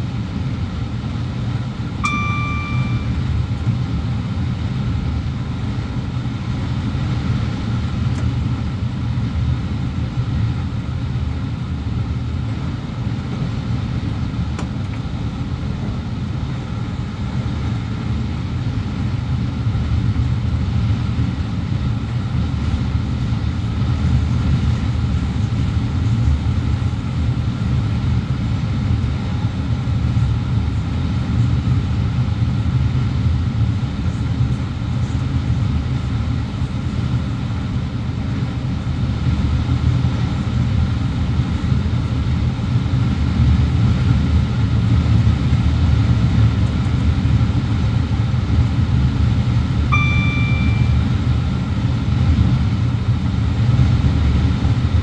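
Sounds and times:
electronic beep: 0:02.0 - 0:03.3, 0:49.9 - 0:51.1.

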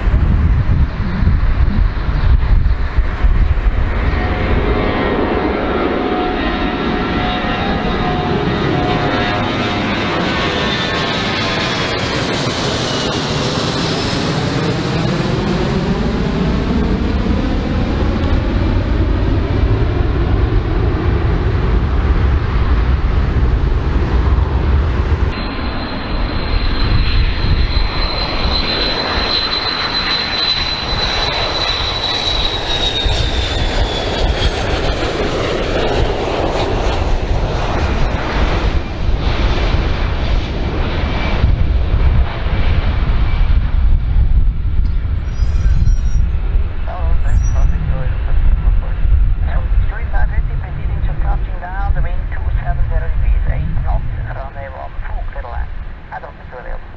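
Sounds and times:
jet engines roaring: 0:00.0 - 0:56.9
high steady whine: 0:43.5 - 0:56.9.

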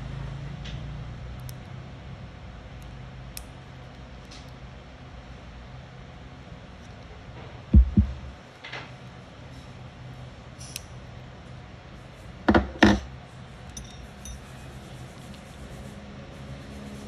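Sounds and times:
faint steady hum: 0:00.0 - 0:16.4
dull knocks: 0:07.8 - 0:08.4.

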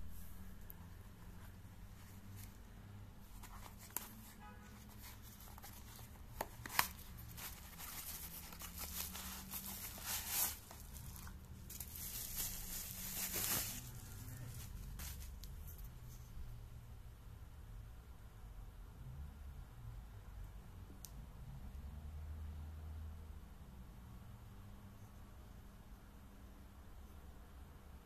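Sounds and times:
bubble wrap crinkling: 0:03.3 - 0:15.5
cardboard box tearing: 0:06.5 - 0:13.8.

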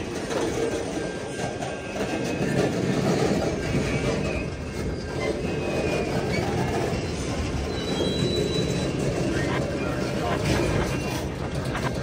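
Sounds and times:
freight train cars rolling: 0:00.0 - 0:12.0
high wheel squeals: 0:00.0 - 0:12.0.

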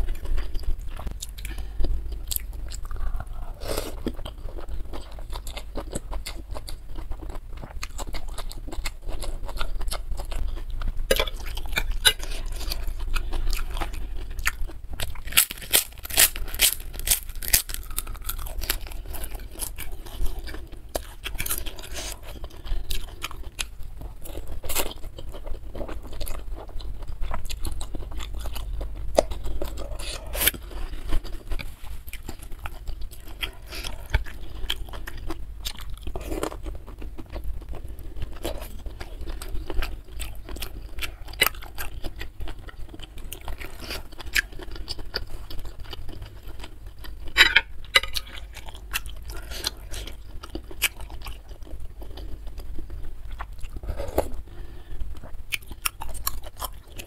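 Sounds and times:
wet chewing and biting: 0:04.0 - 0:47.2.

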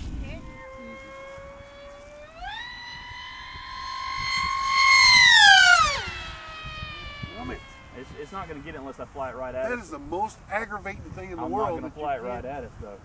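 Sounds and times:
model plane motors whining: 0:00.0 - 0:10.3.

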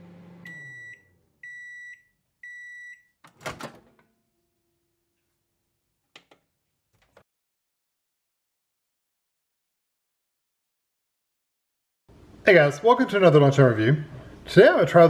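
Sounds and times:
microwave oven humming: 0:00.0 - 0:01.8
microwave high beeps: 0:00.4 - 0:03.2
microwave door unlatching clunk: 0:03.3 - 0:04.0.

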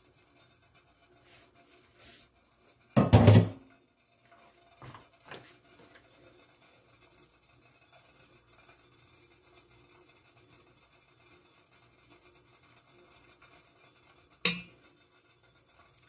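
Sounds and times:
metal pot lid clattering: 0:03.0 - 0:03.6, 0:14.4 - 0:14.8.

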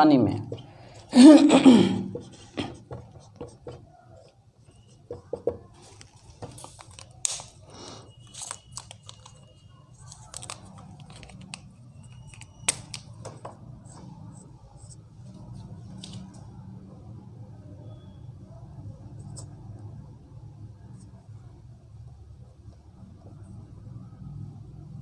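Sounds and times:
pen tapping: 0:02.1 - 0:03.9, 0:04.8 - 0:06.8
marker squeaking on whiteboard: 0:02.1 - 0:07.1, 0:08.1 - 0:15.0.

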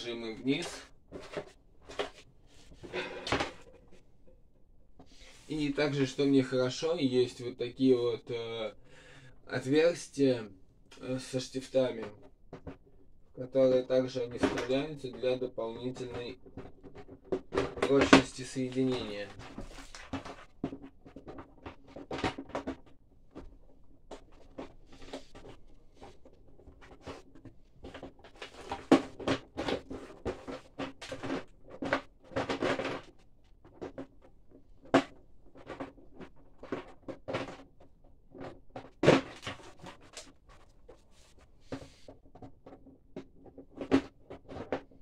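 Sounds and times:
plastic clicks and knocks: 0:12.1 - 0:13.0, 0:15.9 - 0:45.0.

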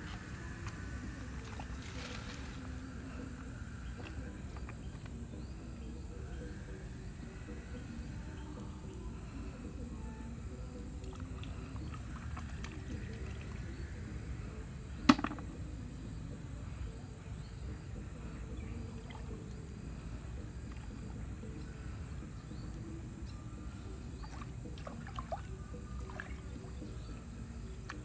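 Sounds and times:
bamboo tubes splashing in water: 0:24.2 - 0:26.4.

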